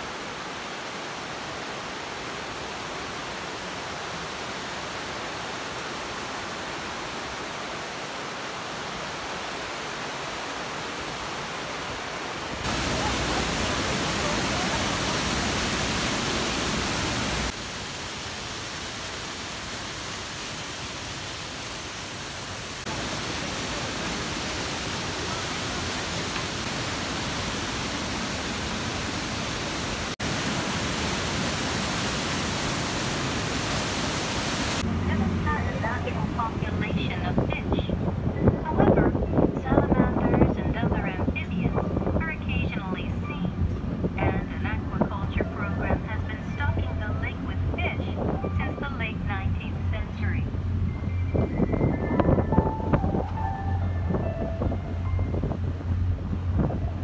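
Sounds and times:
rushing white water: 0.0 - 39.8.

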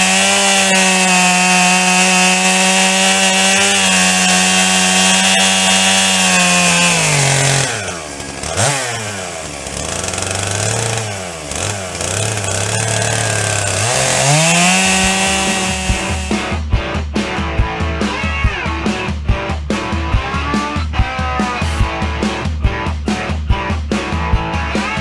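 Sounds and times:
chainsaw cutting wood: 0.0 - 16.6.

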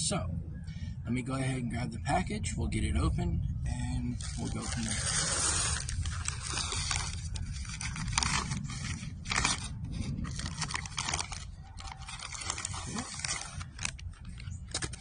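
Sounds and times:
low steady rumble: 0.0 - 15.0
paper bag crinkling: 4.1 - 15.0.

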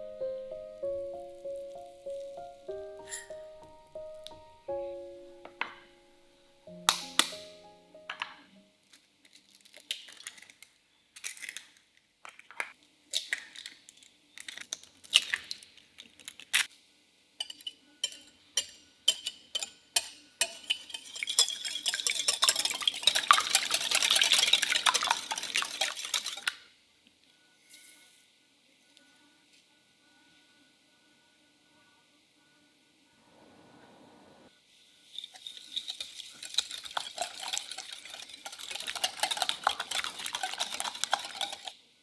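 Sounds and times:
eggs cracked against glass bowl: 6.8 - 7.5, 17.4 - 26.6, 35.4 - 41.7
whisk beating eggs in glass bowl: 17.4 - 26.6, 35.4 - 41.8.

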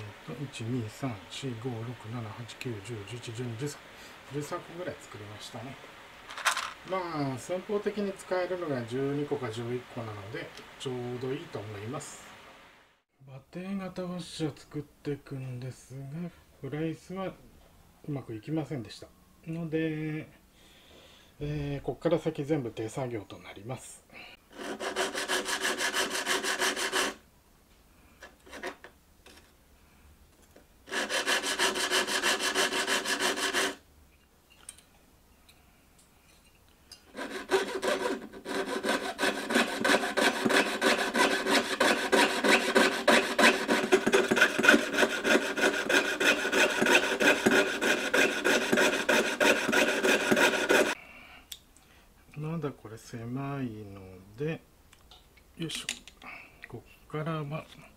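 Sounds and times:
file rasping on metal: 24.5 - 27.2, 28.4 - 28.9, 30.9 - 33.8, 37.1 - 51.0
piercing saw cutting metal: 24.5 - 27.2, 30.9 - 33.8, 37.1 - 51.0.

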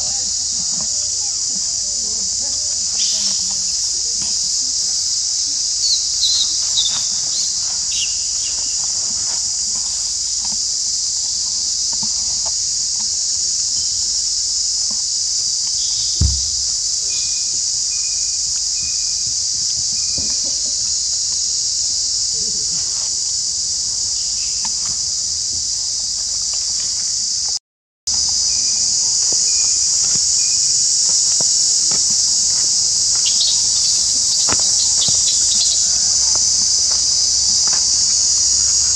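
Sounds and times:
insect chorus drone: 0.0 - 38.9
low thump: 16.2 - 17.0.

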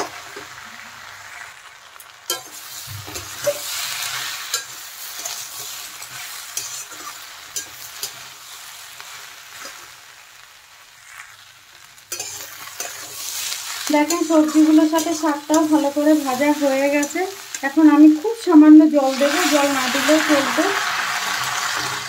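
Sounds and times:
vegetables sizzling in a pan: 0.0 - 22.0
metal spatula scraping a pan: 2.3 - 8.9, 12.1 - 17.7, 19.1 - 22.0.

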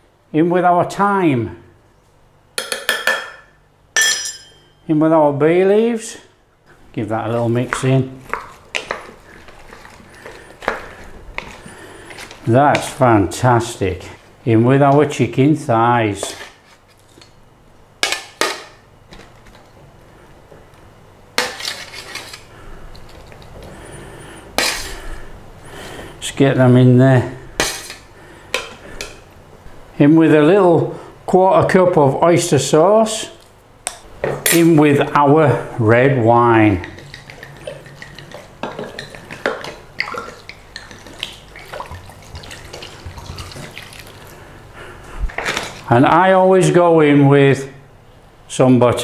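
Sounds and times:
handling and scraping: 7.3 - 13.0, 16.1 - 17.3, 21.4 - 23.8.

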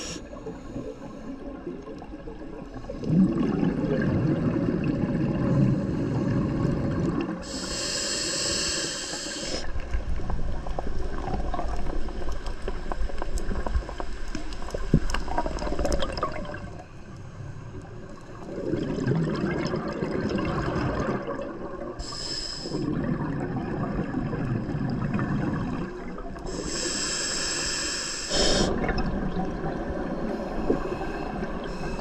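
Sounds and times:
hissing regulator inhalations: 0.0 - 1.4, 7.4 - 9.7, 22.0 - 22.9, 26.5 - 28.8
low bubbling of exhaled air: 0.0 - 7.5, 17.9 - 22.0, 22.6 - 26.6.

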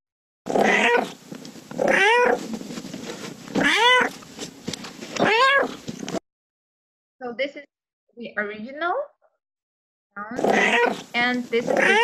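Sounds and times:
cat meowing: 0.6 - 1.1, 1.8 - 2.4, 3.6 - 4.1, 5.2 - 5.8, 10.4 - 11.0, 11.7 - 12.0.

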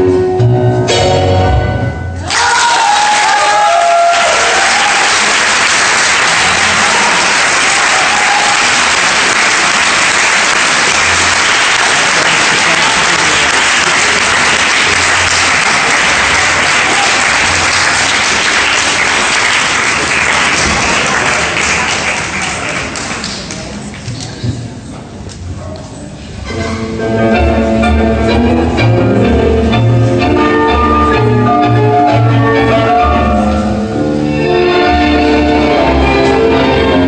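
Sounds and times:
music: 0.0 - 2.4, 26.4 - 37.0
audience applauding: 2.3 - 24.4.

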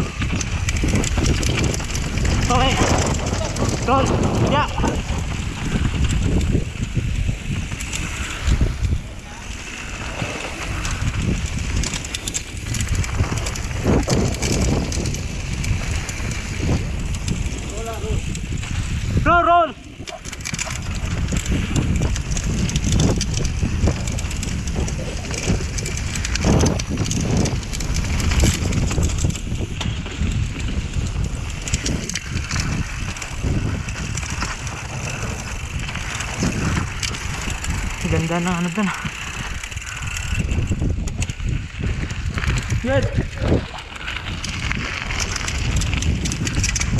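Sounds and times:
bike clattering and rattling: 0.0 - 46.9
bike tyres rumbling over dirt: 0.0 - 46.9
wind buffeting microphone: 0.0 - 46.9.

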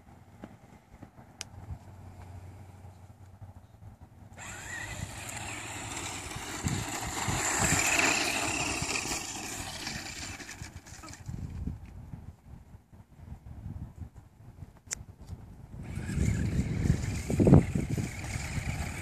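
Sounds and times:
toy truck motor whining: 4.4 - 11.4, 15.8 - 19.0.

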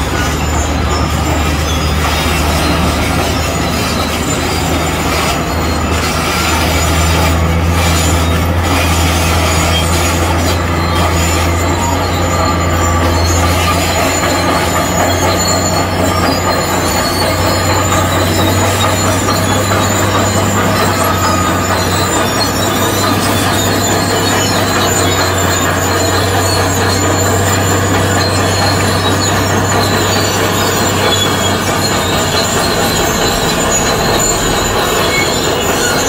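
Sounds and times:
bulldozer diesel engine running: 0.0 - 36.0
steel tracks squealing: 0.0 - 36.0.

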